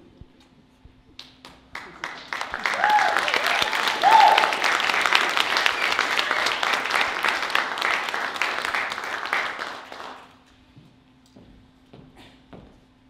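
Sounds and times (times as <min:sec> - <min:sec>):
audience applauding: 0:01.2 - 0:10.4
person whooping: 0:02.4 - 0:07.2.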